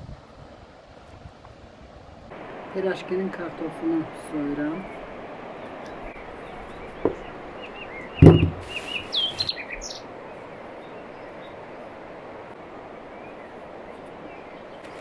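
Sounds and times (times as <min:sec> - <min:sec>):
faint steady hiss: 0:00.0 - 0:15.0
small birds chirping: 0:04.6 - 0:11.6
loud thump: 0:08.2 - 0:08.8
brief rustle: 0:08.3 - 0:09.6, 0:14.8 - 0:15.0.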